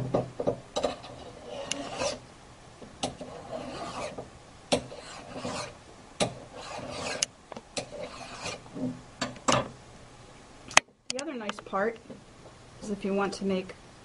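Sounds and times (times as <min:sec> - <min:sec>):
file rasping on metal: 0:00.8 - 0:02.2, 0:03.0 - 0:08.9.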